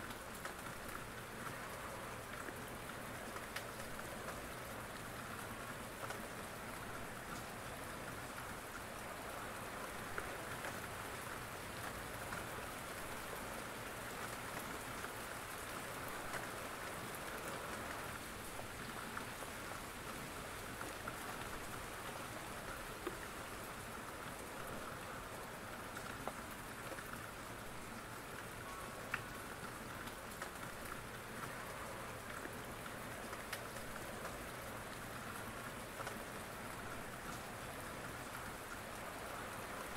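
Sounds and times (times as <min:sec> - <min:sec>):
steady rain falling: 0:00.0 - 0:39.9
light ticks: 0:02.3 - 0:04.4, 0:29.1 - 0:30.7.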